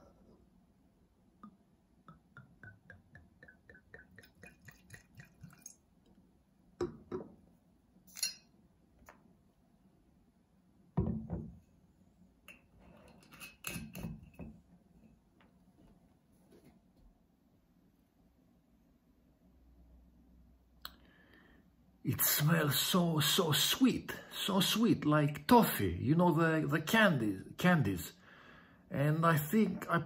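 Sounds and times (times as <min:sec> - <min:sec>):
liquid glugging into glass: 0:02.1 - 0:05.8
glass clinking on table: 0:08.1 - 0:08.5.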